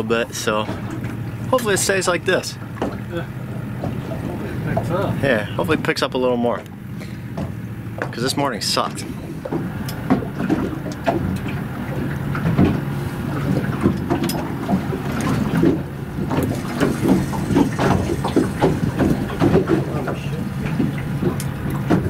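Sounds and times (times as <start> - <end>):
boat motor humming: 0.0 - 22.0
knocks and clicks: 13.5 - 22.0.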